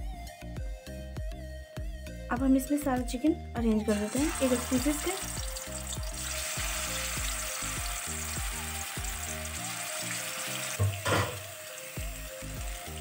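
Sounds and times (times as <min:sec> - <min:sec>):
soft background music: 0:00.0 - 0:13.0
chicken sizzling in hot oil: 0:03.9 - 0:13.0.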